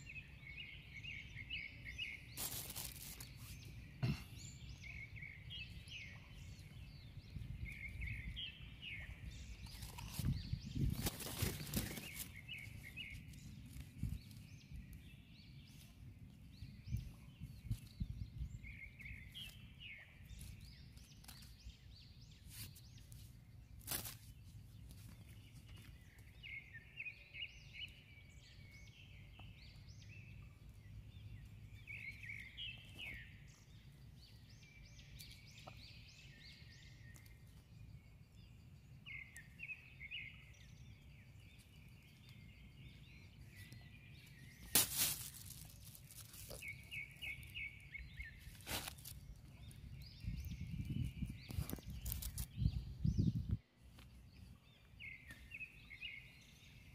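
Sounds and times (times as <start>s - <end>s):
birds chirping: 0.0s - 56.9s
low rumble of wind: 0.0s - 56.9s
plastic bag crackling: 2.4s - 3.5s, 44.7s - 46.6s.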